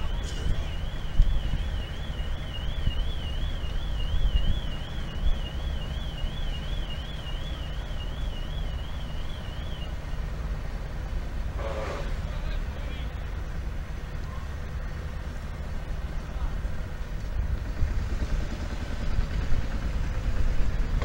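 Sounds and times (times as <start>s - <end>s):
warbling electronic alarm tone: 0.0s - 10.0s.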